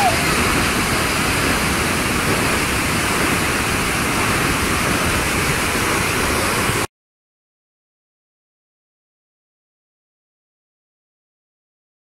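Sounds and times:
waterfall rushing: 0.0 - 6.9.

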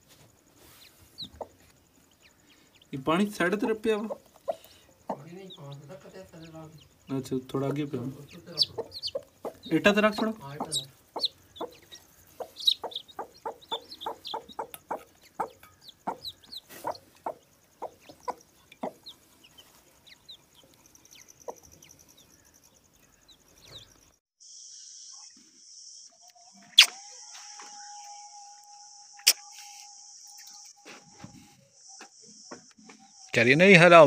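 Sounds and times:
chicks peeping: 0.6 - 24.1
steady high chirring: 2.0 - 19.1
hen clucking: 2.7 - 21.7
sharp click: 29.2 - 29.4.

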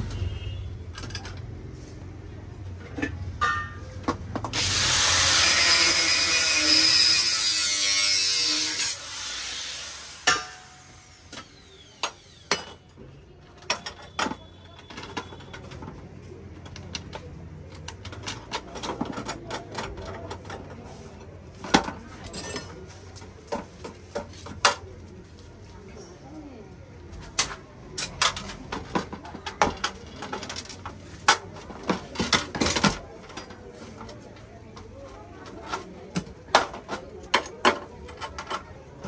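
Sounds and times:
harsh rasping tool noise: 4.5 - 12.7.

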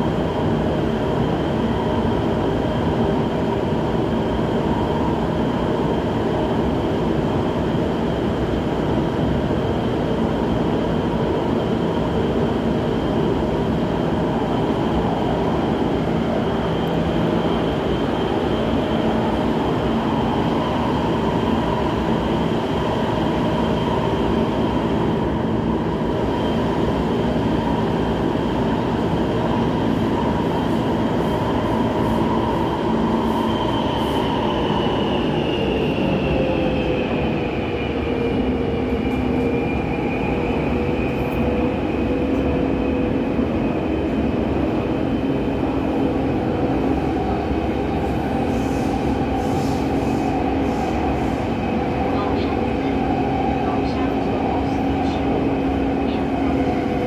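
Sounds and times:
train drive whine: 0.0 - 57.0
train wheels rumbling on rail: 0.0 - 57.0.

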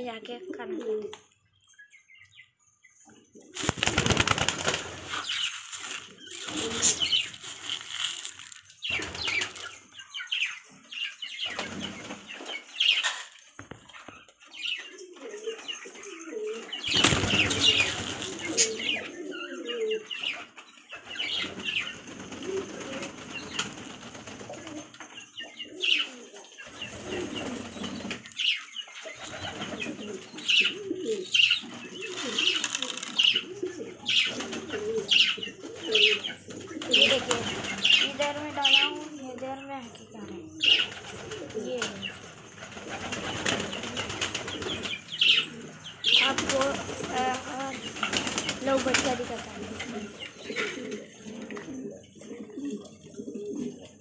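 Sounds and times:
pigeons cooing: 3.1 - 8.0, 14.5 - 54.0
wings flapping: 3.5 - 9.8, 16.1 - 19.2, 21.0 - 25.1, 29.1 - 30.3, 31.6 - 39.2, 40.3 - 51.8.

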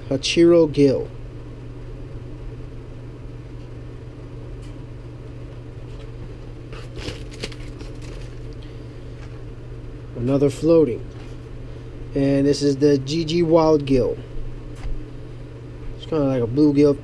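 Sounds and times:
low machine hum: 0.0 - 17.0
packaging rustling and crinkling: 6.7 - 8.6.

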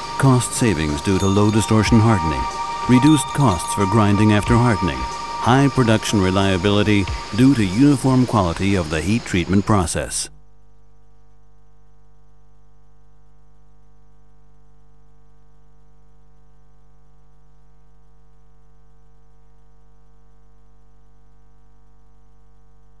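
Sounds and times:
faint hiss: 0.0 - 10.3
electrical mains hum: 0.0 - 23.0.

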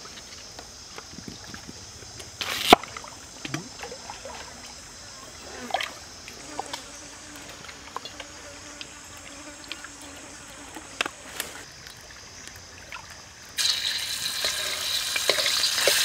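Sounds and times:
faint insect buzz: 0.0 - 16.0
stream trickling: 0.0 - 16.0
loud sizzle in hot wok: 13.6 - 16.0.

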